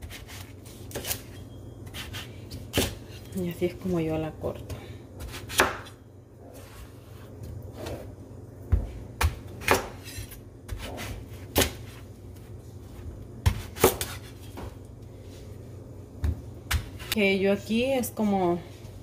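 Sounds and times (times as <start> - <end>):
knife chopping on wooden board: 5.2 - 5.9, 8.7 - 11.8, 13.4 - 14.3, 16.2 - 17.2.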